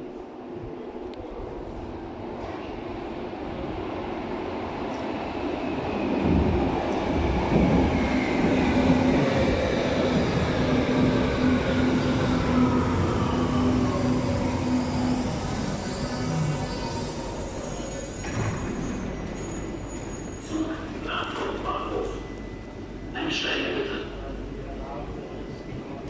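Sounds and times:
train rumbling: 0.0s - 26.0s
train brakes whining: 9.4s - 23.6s.

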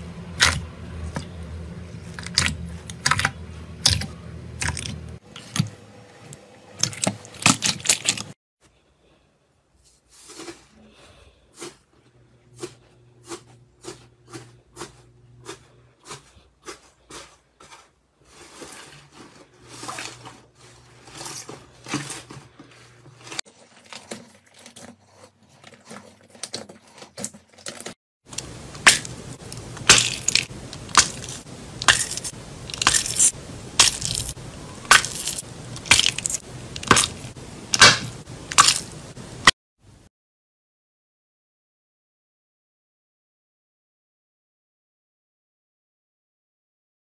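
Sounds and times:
slime bags popping: 28.8s - 39.0s.

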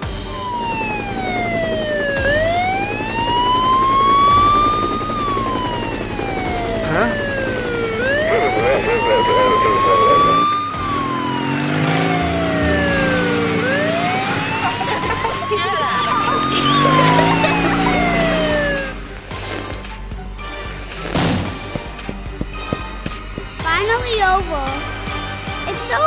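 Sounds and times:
police siren wailing: 0.0s - 19.6s.

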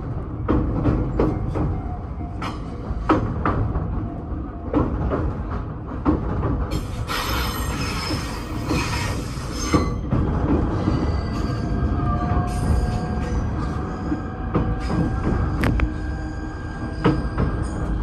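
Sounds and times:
train wheels clicking over rail joints: 4.6s - 11.5s.

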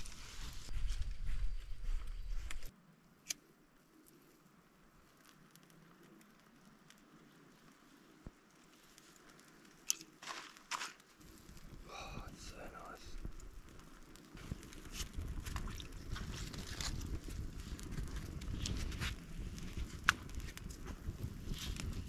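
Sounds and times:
twigs crackling as they burn: 0.0s - 1.2s, 2.2s - 22.0s
wind rumbling on microphone: 0.0s - 2.7s, 11.2s - 22.0s
dry twigs snapping: 13.2s - 22.0s.

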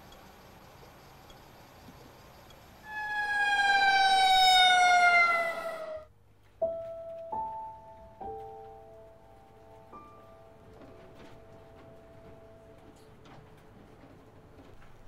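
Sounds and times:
tone sliding down in pitch: 2.8s - 6.1s.

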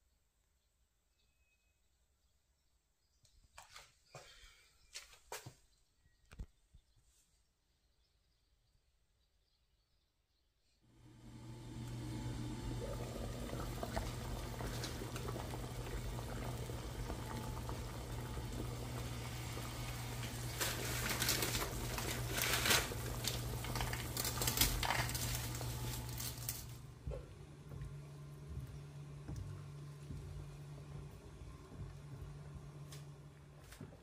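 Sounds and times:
low hum: 10.9s - 34.0s
water boiling and bubbling: 10.9s - 34.0s.

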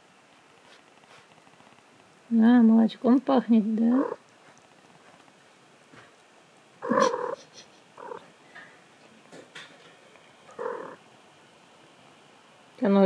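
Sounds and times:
cat mewing: 6.8s - 8.2s, 10.5s - 11.0s.

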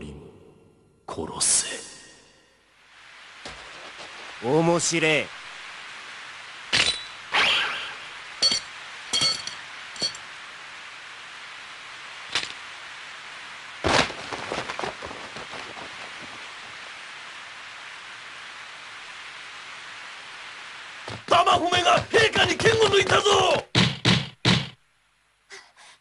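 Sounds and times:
heavy rain on stone paving: 2.8s - 23.7s
sword clinking metallically: 8.4s - 10.2s.

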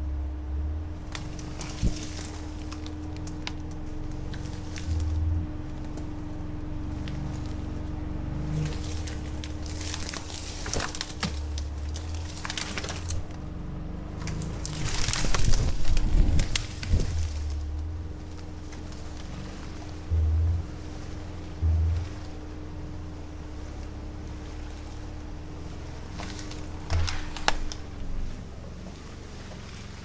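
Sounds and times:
vehicle engine running low: 0.0s - 30.0s
branches scraping and snapping: 0.5s - 30.0s.

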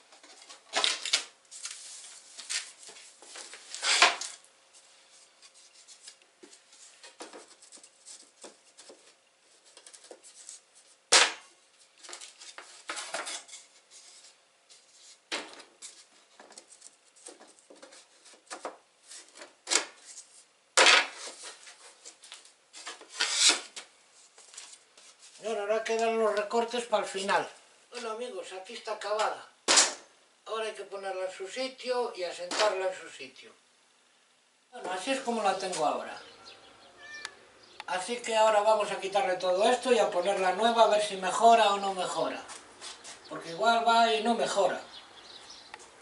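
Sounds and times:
boards knocking down: 20.8s - 21.2s.

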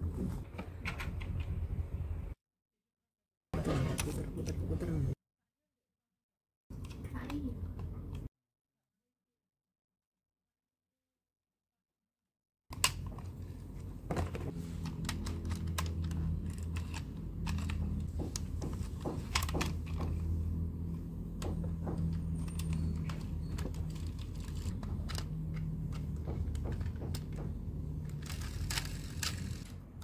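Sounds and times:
clicks and taps of toy parts: 14.8s - 20.2s, 21.3s - 29.7s.

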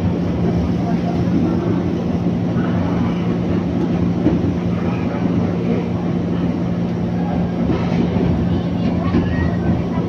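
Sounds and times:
train rumbling on board: 0.0s - 10.0s.

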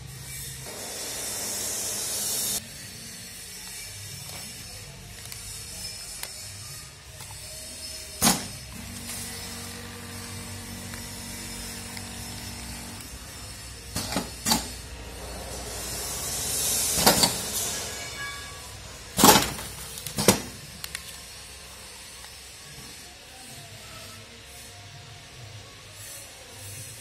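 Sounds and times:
air hissing: 0.6s - 2.6s, 7.2s - 24.8s
machine humming: 0.6s - 2.7s, 7.2s - 22.2s.

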